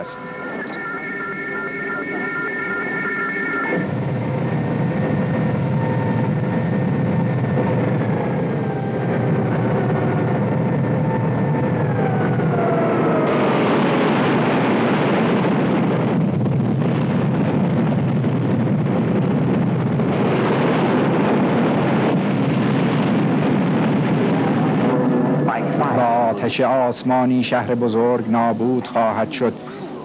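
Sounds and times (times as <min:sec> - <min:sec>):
tones sliding downward: 0:00.0 - 0:03.9
rocket exhaust roar: 0:00.0 - 0:30.0.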